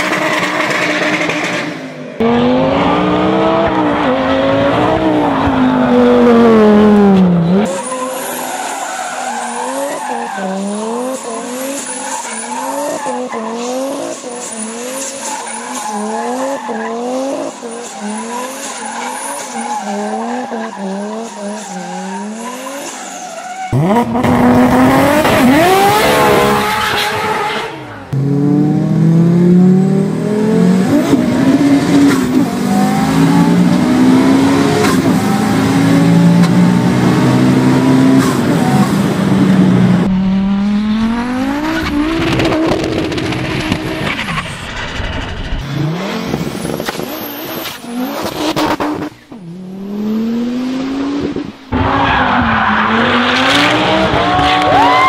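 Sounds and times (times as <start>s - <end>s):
car engines revving hard: 0.0s - 23.0s, 23.6s - 55.0s
tyre squeal: 7.6s - 24.0s.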